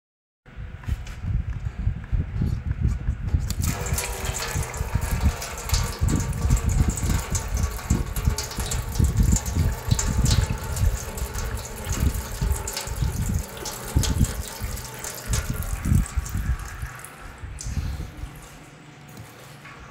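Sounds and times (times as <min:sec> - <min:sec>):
coolant splashing into metal pan: 0:03.5 - 0:18.0.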